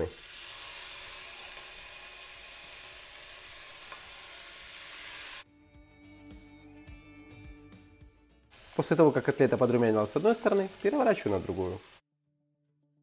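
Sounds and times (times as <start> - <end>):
beef patties sizzling in oil: 0.0 - 5.4, 8.5 - 12.0.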